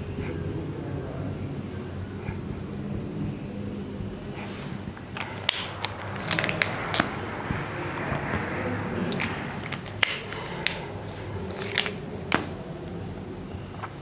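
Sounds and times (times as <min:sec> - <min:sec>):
marker scratching on whiteboard: 0:00.0 - 0:14.0
steady low hum: 0:00.0 - 0:14.0
sharp clicks and short scrapes: 0:04.4 - 0:13.1.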